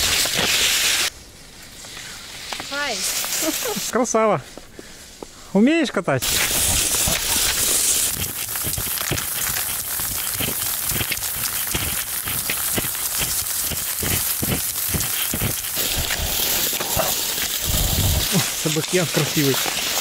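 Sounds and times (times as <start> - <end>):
skis swishing and crunching on snow: 0.0 - 1.1, 1.7 - 5.2, 6.2 - 20.0.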